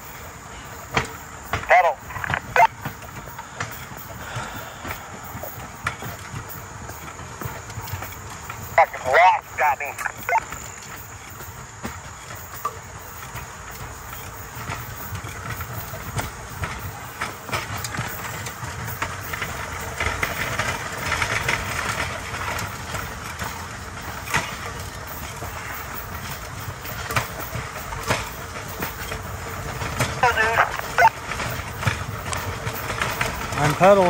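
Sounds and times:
steel wheels rumbling on rails: 0.0s - 34.0s
clicks and knocks from rails: 10.0s - 34.0s.

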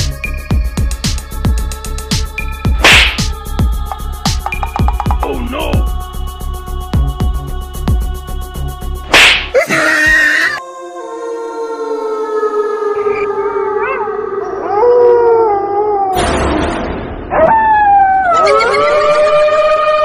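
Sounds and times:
dog howling: 9.6s - 16.2s, 17.3s - 20.0s.

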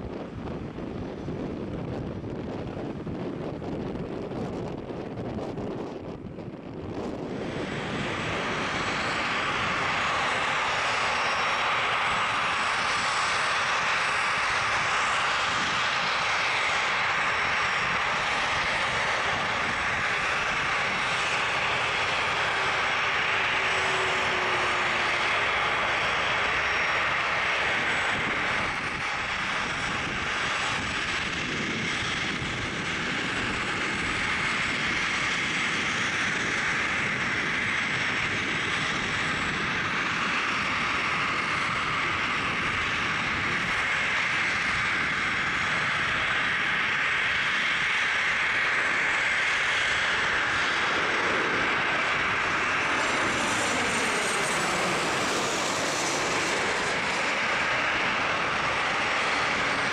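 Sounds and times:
jet engines taxiing: 0.0s - 59.9s.

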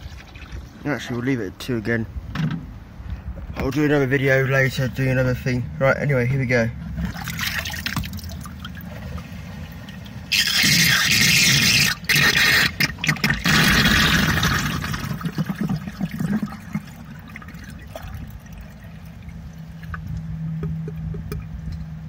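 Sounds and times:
water draining down a pipe: 7.0s - 21.5s.

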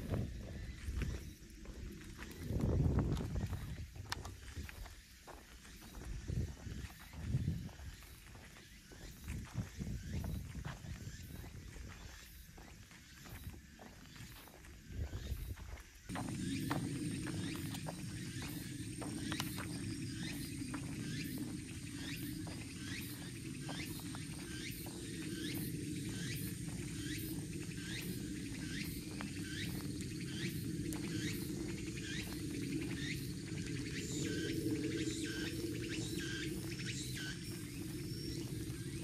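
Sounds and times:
footsteps on paved lane: 0.0s - 39.0s
high insect buzz: 14.2s - 39.0s.

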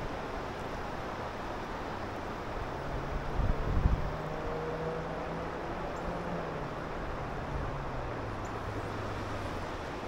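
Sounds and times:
river current rushing: 0.0s - 10.0s
wind on microphone: 3.1s - 4.3s.

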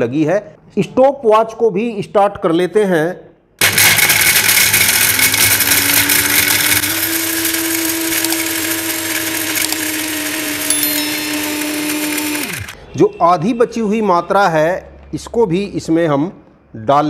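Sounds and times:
mixer grinder motor whine: 3.6s - 12.8s.

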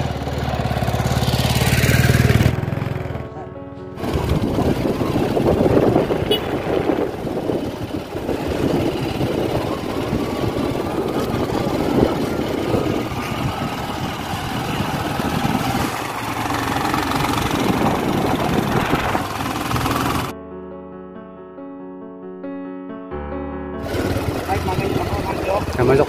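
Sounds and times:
motorcycle engine running: 0.0s - 20.3s, 23.8s - 26.0s
rushing noise: 4.0s - 20.3s.

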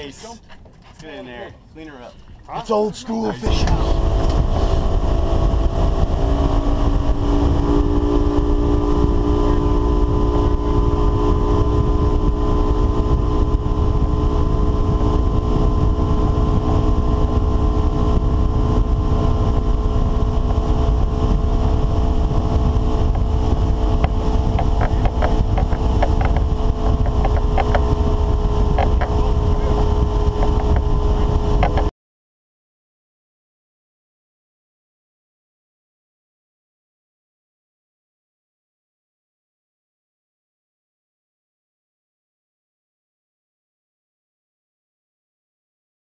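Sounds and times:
motorboat engine running: 3.2s - 31.9s
wind buffeting microphone: 3.4s - 31.9s.

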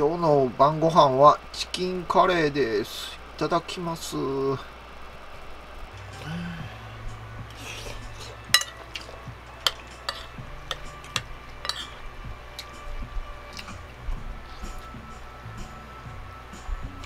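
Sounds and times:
spoon clinking on ceramic plate: 8.5s - 8.9s.

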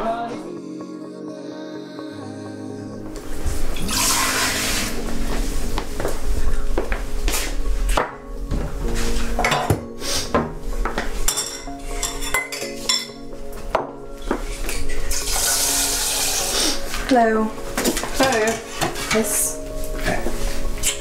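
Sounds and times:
crockery and cutlery clinking: 9.4s - 9.9s, 11.0s - 13.3s, 17.8s - 21.0s.

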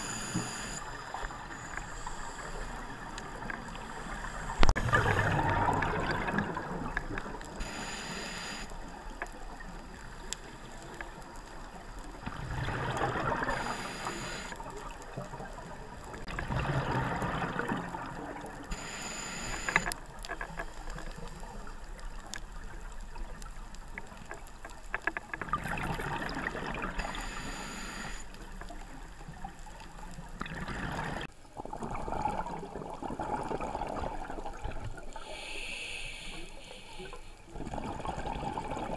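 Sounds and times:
scuba regulator hiss on inhale: 0.0s - 5.4s, 7.6s - 8.7s, 13.4s - 14.6s, 18.7s - 19.9s, 27.0s - 28.3s, 35.2s - 37.5s
exhaled bubbles rushing: 4.7s - 7.6s, 12.2s - 13.7s, 15.4s - 18.6s, 25.5s - 27.0s, 30.4s - 35.1s, 37.5s - 38.9s.

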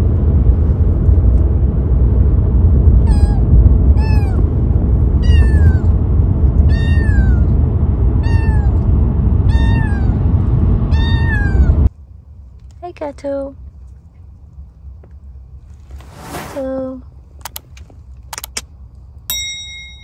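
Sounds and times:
car road rumble: 0.0s - 19.2s
kitten meowing: 3.0s - 4.4s, 5.2s - 6.0s, 6.6s - 7.6s, 8.2s - 8.8s, 9.4s - 10.2s, 10.9s - 11.9s.

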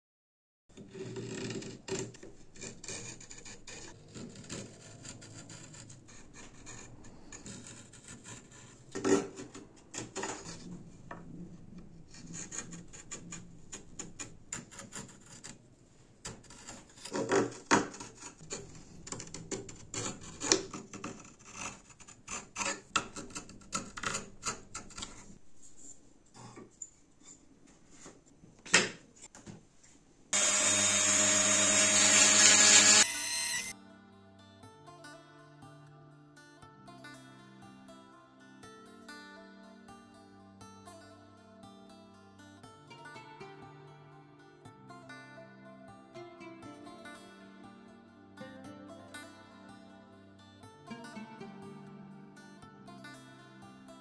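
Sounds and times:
wood rubbing and scraping: 0.7s - 15.6s, 16.2s - 28.3s, 30.4s - 33.7s.

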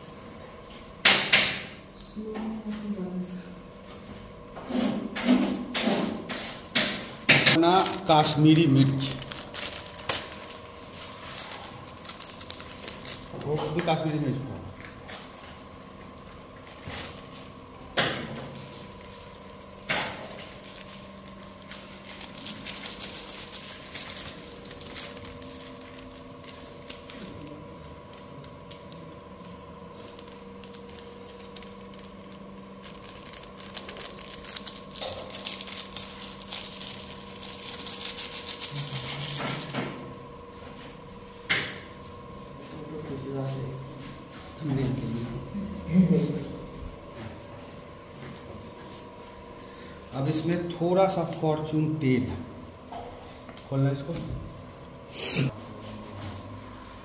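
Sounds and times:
electrical hum: 0.0s - 57.0s
crinkling handling noise: 7.0s - 42.3s.

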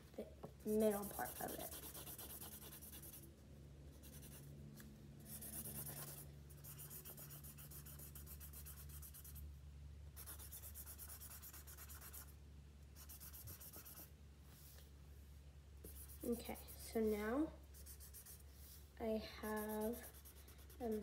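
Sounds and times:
marker scribbling on paper: 0.7s - 3.2s, 3.9s - 4.5s, 5.2s - 9.4s, 10.2s - 12.3s, 13.0s - 14.1s, 15.8s - 16.9s, 17.7s - 18.8s, 19.4s - 21.0s.

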